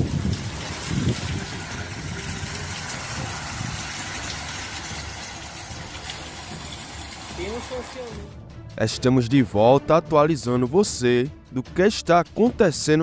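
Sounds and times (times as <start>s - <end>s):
wind buffeting microphone: 0.0s - 7.0s
storm wind and heavy rain: 0.0s - 8.3s.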